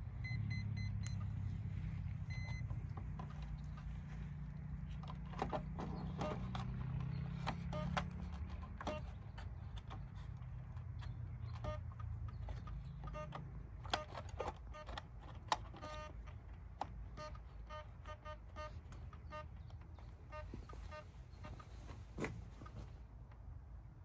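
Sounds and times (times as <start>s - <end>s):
low steady hum: 0.0s - 24.0s
short electronic beeps: 0.2s - 1.3s, 2.2s - 2.7s, 11.6s - 11.8s, 20.3s - 21.7s
clicks and knocks of handling: 2.4s - 23.5s.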